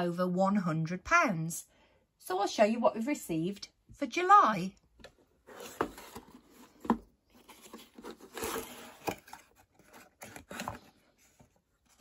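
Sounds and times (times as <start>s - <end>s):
cardboard scraping and rustling: 5.4s - 12.0s.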